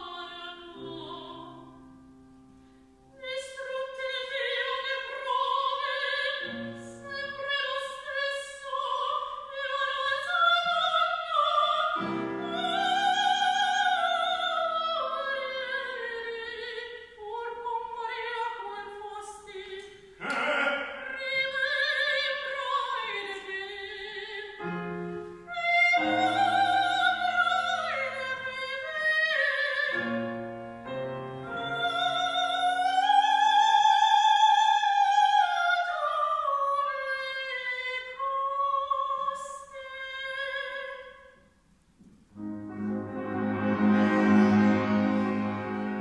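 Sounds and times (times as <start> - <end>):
soprano singing opera: 0.0 - 1.8, 3.1 - 41.4
piano chords: 29.7 - 32.2, 42.3 - 46.0.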